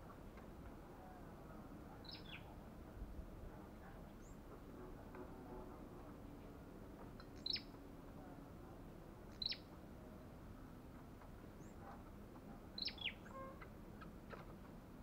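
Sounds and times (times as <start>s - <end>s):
bird chip calls: 7.4s - 7.7s, 9.3s - 9.6s, 12.8s - 14.5s.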